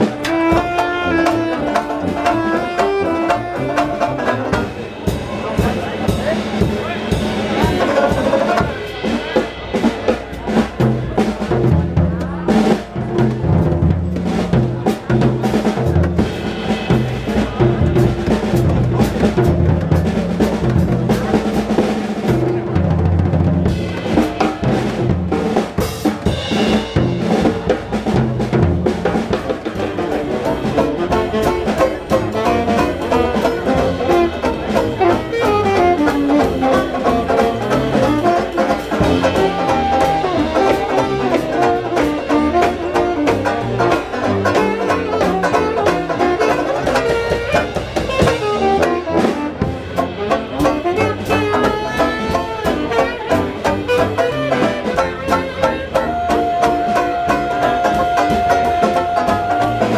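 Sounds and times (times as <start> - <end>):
saxophone: 0.0 - 4.8, 29.6 - 59.9
drum kit playing: 0.0 - 59.9
tuba bass line: 0.0 - 59.9.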